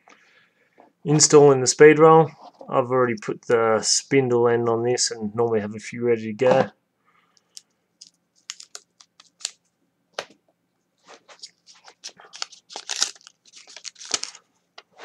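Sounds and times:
thin plastic film crinkling: 8.0s - 9.6s, 11.2s - 14.5s.

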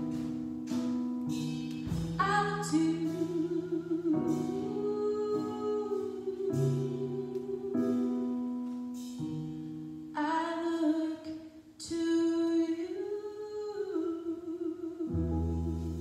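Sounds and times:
woman singing long notes: 2.2s - 8.4s.

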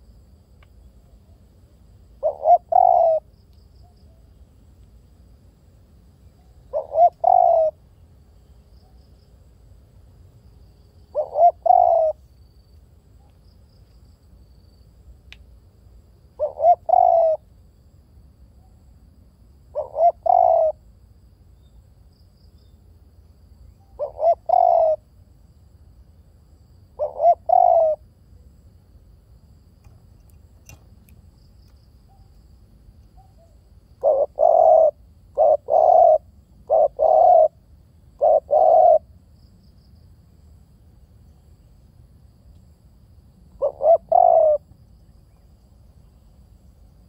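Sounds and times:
dove cooing: 2.2s - 3.3s, 6.6s - 7.8s, 11.1s - 12.2s, 16.4s - 17.4s, 19.7s - 20.8s, 23.9s - 25.1s, 27.0s - 28.0s, 33.2s - 39.1s, 43.6s - 44.7s.

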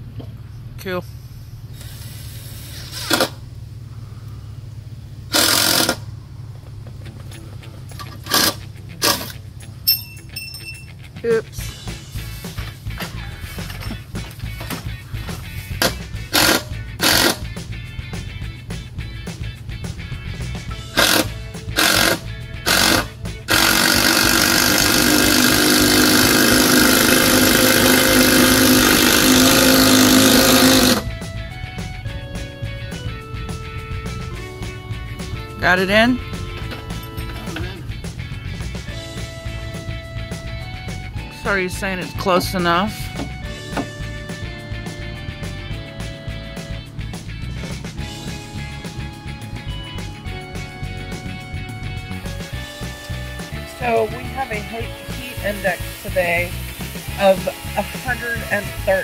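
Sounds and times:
steady low hum: 0.0s - 35.6s
cordless drill driving screws: 2.8s - 3.4s, 5.3s - 6.0s, 8.3s - 9.4s, 15.8s - 17.4s, 21.0s - 31.1s.

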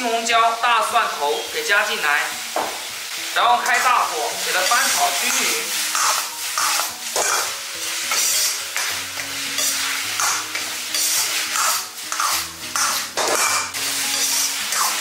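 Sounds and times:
food sizzling in a wok: 0.0s - 15.0s
food scraped and tossed in wok: 3.8s - 15.0s.

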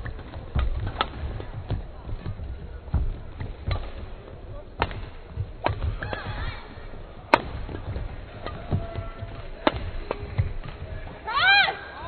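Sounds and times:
rackets striking shuttlecock: 4.8s - 6.7s, 7.3s - 10.9s.

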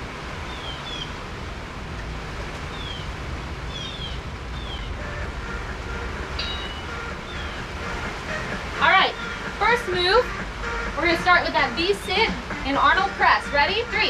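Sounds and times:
high falling chirps: 3.7s - 10.9s.

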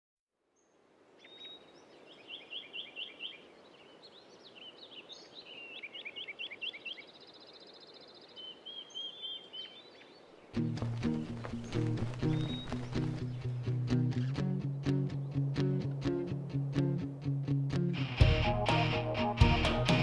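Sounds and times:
steady background hiss: 0.4s - 19.1s
birds singing: 0.6s - 15.5s
loud music: 18.0s - 20.0s.

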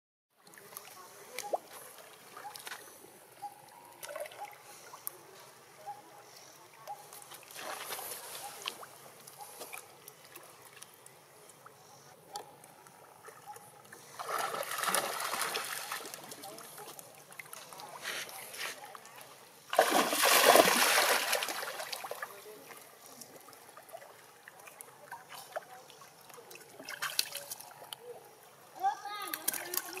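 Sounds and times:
water sloshing and splashing: 7.1s - 11.2s, 12.8s - 28.0s, 29.3s - 30.0s
small water drips: 29.2s - 30.0s.

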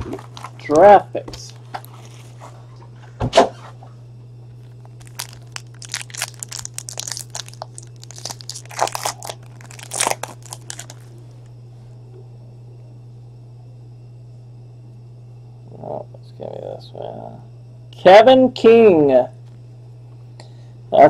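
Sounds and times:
foil wrapper tearing and crinkling: 0.0s - 0.8s, 4.6s - 11.2s.

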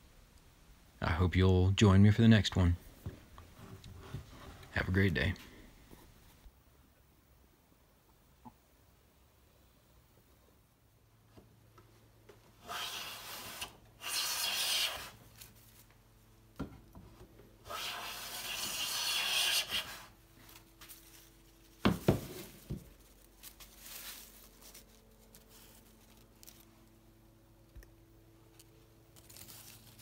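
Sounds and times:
hand plane shaving wood: 12.6s - 15.2s, 17.6s - 20.2s.

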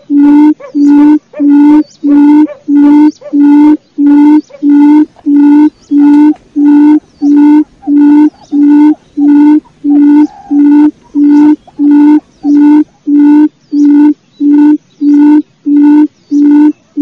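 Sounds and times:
quail lure call hooting: 0.0s - 17.0s.

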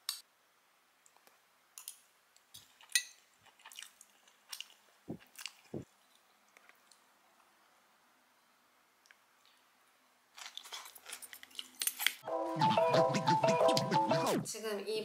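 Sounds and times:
quiet chewing: 1.0s - 7.5s.

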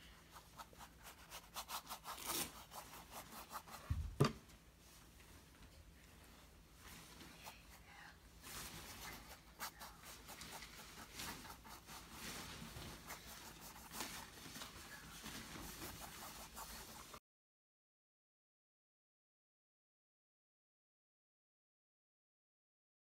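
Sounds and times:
paintbrush scrubbing on canvas: 0.2s - 3.9s, 6.8s - 17.2s.

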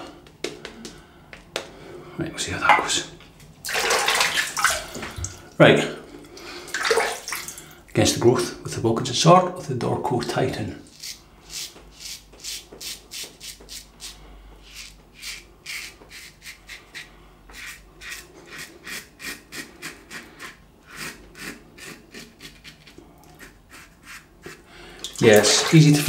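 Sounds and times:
razor scraping stubble: 10.8s - 24.7s.

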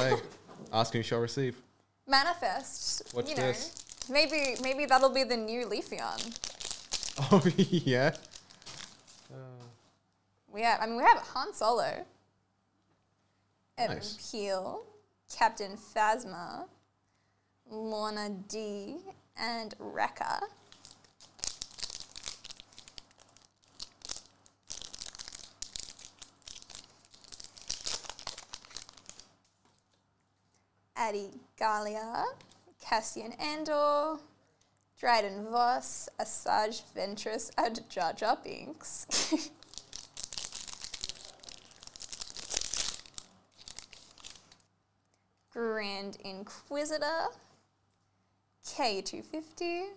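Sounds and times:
foil wrapper tearing and crinkling: 3.0s - 5.1s, 6.0s - 9.3s, 20.6s - 29.4s, 39.2s - 44.7s.

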